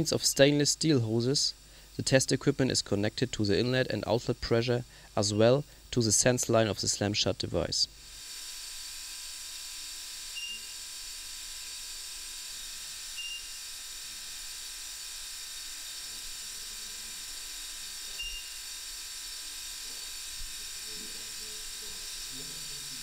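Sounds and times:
steady high hiss: 0:00.0 - 0:08.2, 0:15.8 - 0:23.0
short high beeps: 0:18.2 - 0:18.6.

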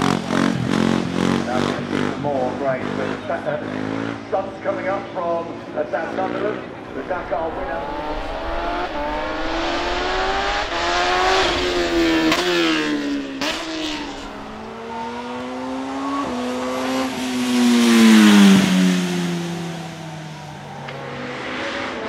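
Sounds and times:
motorcycle engine accelerating: 0:00.0 - 0:04.3, 0:06.2 - 0:22.0
motorcycle passing by: 0:06.2 - 0:22.0.

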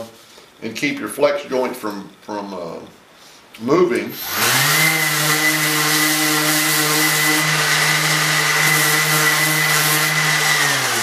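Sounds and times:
orbital sander sanding plywood: 0:04.2 - 0:11.0.

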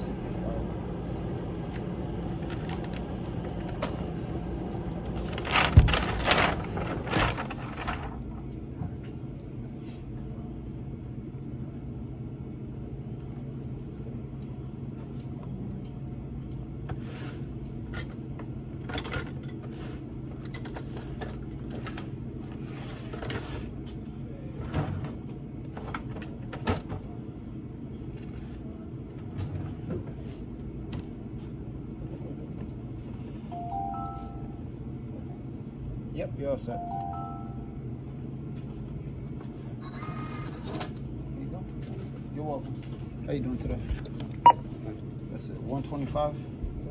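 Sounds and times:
low background hum: 0:00.0 - 0:46.9
goods being bagged: 0:05.1 - 0:08.3.

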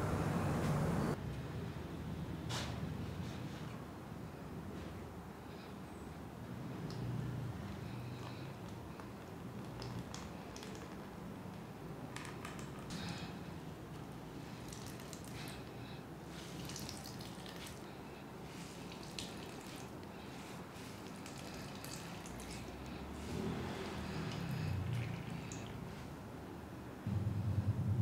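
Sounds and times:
water dripping into plastic bucket: 0:09.6 - 0:11.0, 0:14.6 - 0:15.6, 0:16.6 - 0:17.8, 0:18.9 - 0:19.9, 0:21.0 - 0:22.9, 0:24.3 - 0:25.8
low steady hum: 0:12.7 - 0:28.0.

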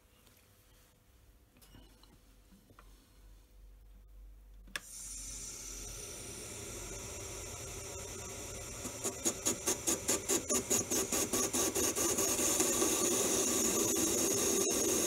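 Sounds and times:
metal lathe humming: 0:05.0 - 0:15.0
lathe tool scraping rhythmically: 0:07.6 - 0:15.0.

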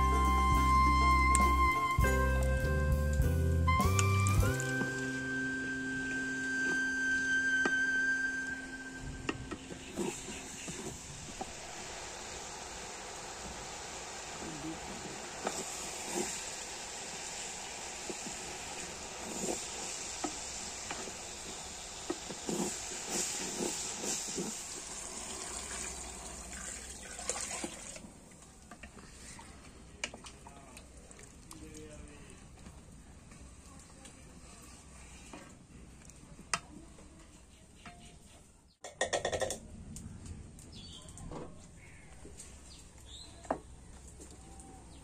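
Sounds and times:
pot boiling with hiss: 0:03.5 - 0:37.8, 0:41.6 - 0:45.0
liquid pouring into pot: 0:24.6 - 0:28.0
small birds chirping: 0:40.6 - 0:45.0.

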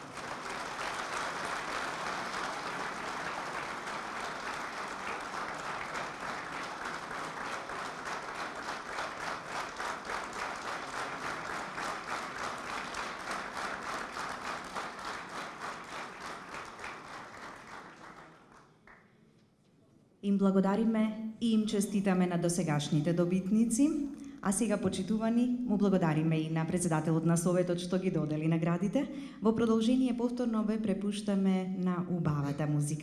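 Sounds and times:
audience applauding: 0:00.0 - 0:19.0.

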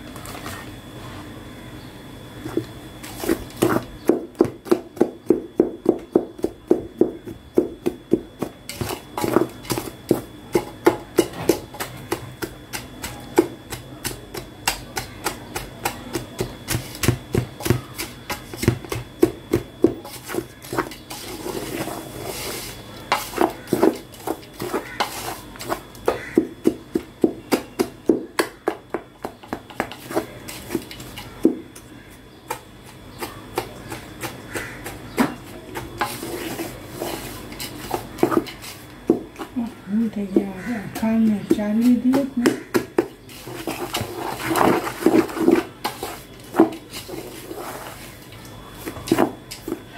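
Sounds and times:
grainy scraping: 0:08.0 - 0:26.5, 0:32.8 - 0:49.9.

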